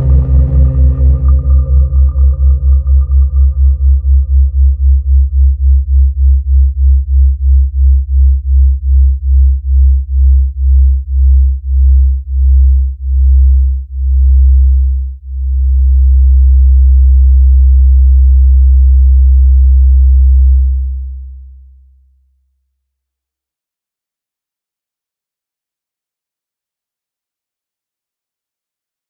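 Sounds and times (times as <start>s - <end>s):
low pulsing electronic tone: 0.0s - 21.4s.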